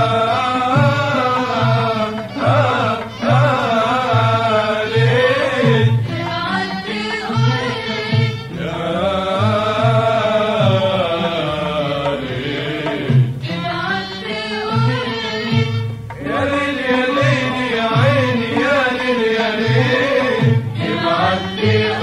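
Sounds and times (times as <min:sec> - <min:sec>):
person singing wavering phrases: 0:16.2 - 0:21.4.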